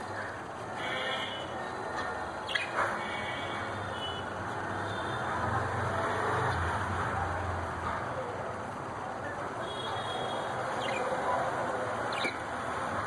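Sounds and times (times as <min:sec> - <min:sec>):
budgerigars chirping: 0:02.5 - 0:02.8, 0:10.7 - 0:11.3, 0:12.1 - 0:12.4.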